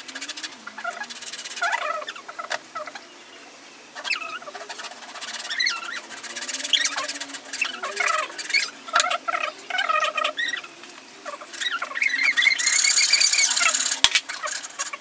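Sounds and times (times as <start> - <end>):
high wavering squeaks: 0.0 - 3.0, 4.0 - 15.0.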